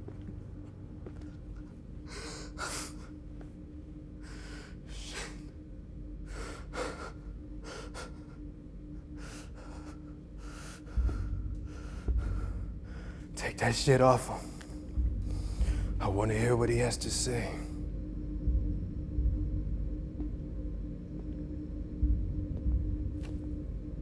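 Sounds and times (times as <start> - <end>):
faint steady hum: 0.0 - 24.0
man gasping breaths: 9.1 - 13.3.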